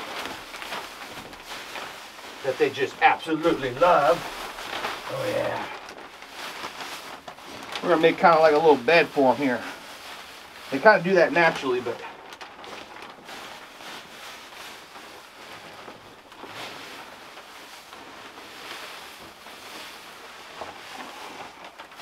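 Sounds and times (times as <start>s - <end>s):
wood shavings pouring: 0.0s - 22.0s.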